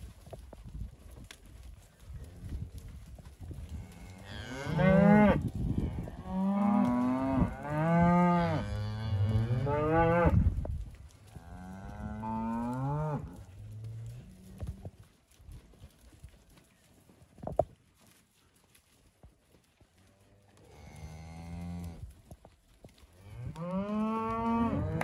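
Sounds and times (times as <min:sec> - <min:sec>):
cows mooing: 0:03.8 - 0:05.4, 0:06.0 - 0:10.4, 0:23.3 - 0:25.0.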